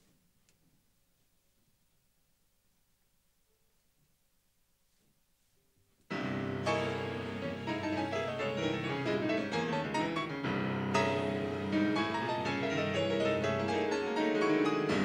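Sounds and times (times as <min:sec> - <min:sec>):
pianos playing fast chords: 0:06.1 - 0:15.0.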